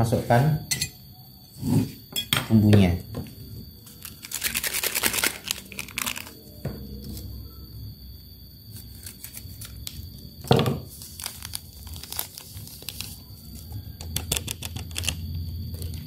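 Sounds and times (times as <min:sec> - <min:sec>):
foil sachet crinkling and tearing: 0:03.8 - 0:06.5, 0:08.8 - 0:10.0, 0:10.9 - 0:13.7.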